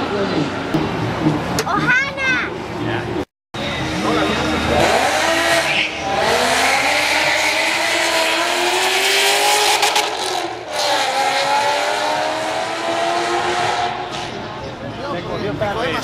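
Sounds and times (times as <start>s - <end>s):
drag cars accelerating hard: 3.9s - 14.5s.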